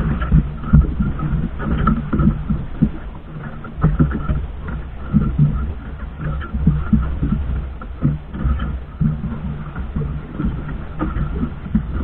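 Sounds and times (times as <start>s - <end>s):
boat engine low rumble: 0.0s - 12.0s
water: 0.0s - 12.0s
wind: 0.0s - 12.0s.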